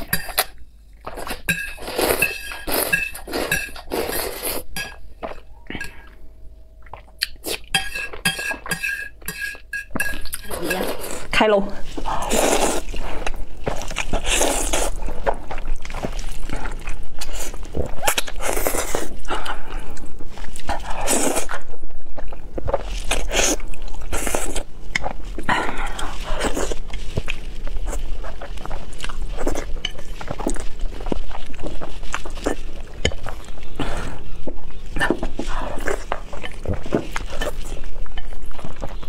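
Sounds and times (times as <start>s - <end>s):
slurping noodles: 1.8s - 4.7s, 12.0s - 19.9s
wet chewing: 11.9s - 39.0s.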